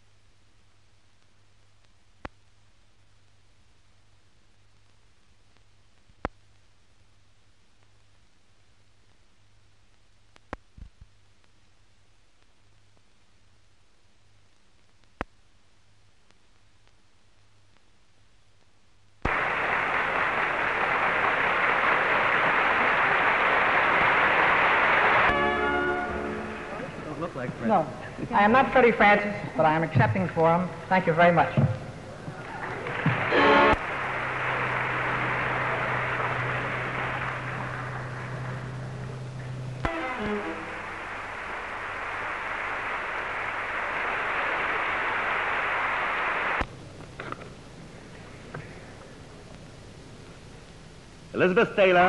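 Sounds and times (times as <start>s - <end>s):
audience applauding: 19.3s - 27.6s, 32.2s - 46.6s.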